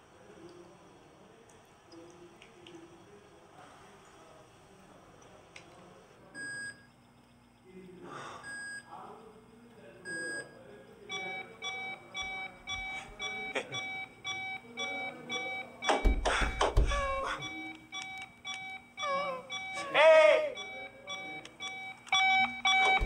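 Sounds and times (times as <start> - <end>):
patient monitor beeping: 6.2 - 23.0.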